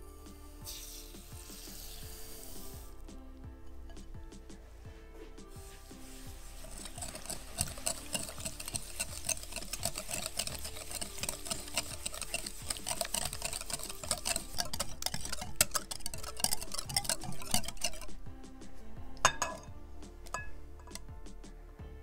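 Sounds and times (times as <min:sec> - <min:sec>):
whisk clicking against glass bowl: 0:06.6 - 0:18.2, 0:19.2 - 0:19.7, 0:20.3 - 0:21.0.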